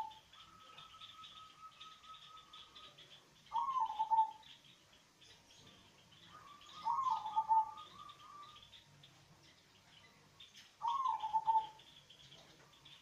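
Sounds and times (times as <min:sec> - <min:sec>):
dove cooing: 0:00.0 - 0:04.5, 0:06.2 - 0:08.6, 0:10.8 - 0:11.8
faint high chirping: 0:00.0 - 0:13.0.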